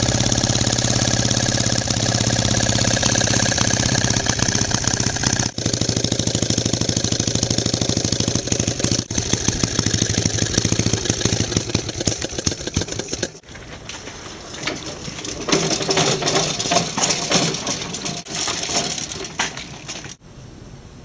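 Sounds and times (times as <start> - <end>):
small engine running: 0.0 - 13.5
irregular clatter and rattle: 0.0 - 20.2.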